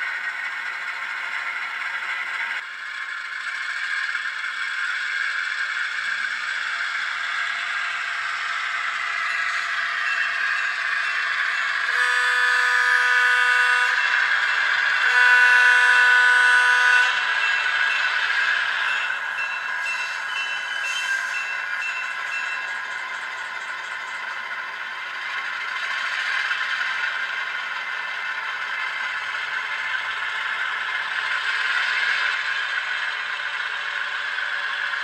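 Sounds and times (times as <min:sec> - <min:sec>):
diesel engine sound: 0:00.0 - 0:35.0
bell ringing: 0:09.3 - 0:12.0, 0:17.3 - 0:22.8
model train horn blasts: 0:11.8 - 0:14.3, 0:14.9 - 0:17.4.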